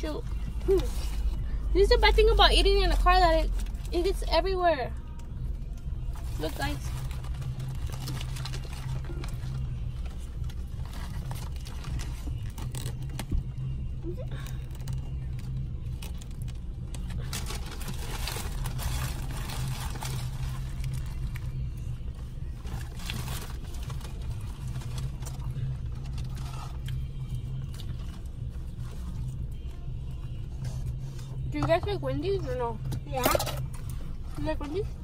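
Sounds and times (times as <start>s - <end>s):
car engine low hum: 0.0s - 35.0s
paper wrapper rustling: 6.2s - 13.3s, 14.6s - 21.7s.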